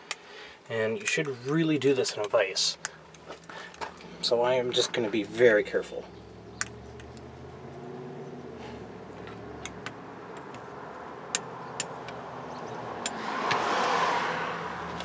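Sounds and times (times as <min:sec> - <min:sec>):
metal sockets clicking: 0:06.6 - 0:07.3, 0:09.2 - 0:13.6.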